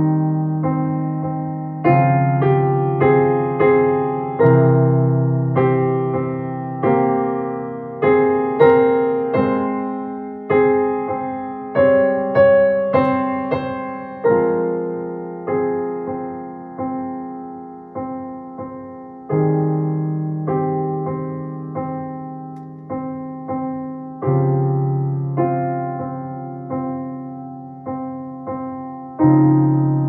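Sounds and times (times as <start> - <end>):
digital piano chords: 0.0 - 30.0.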